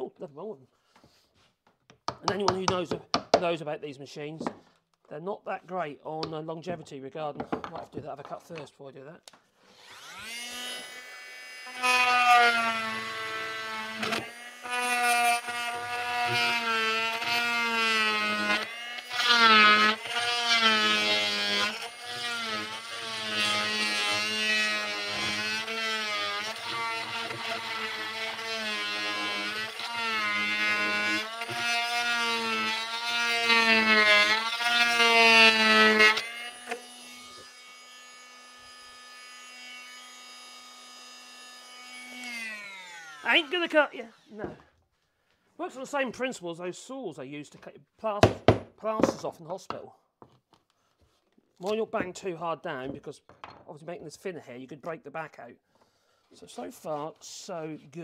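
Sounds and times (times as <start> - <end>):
oscillating multi-tool cutting wood: 9.6 - 44.5.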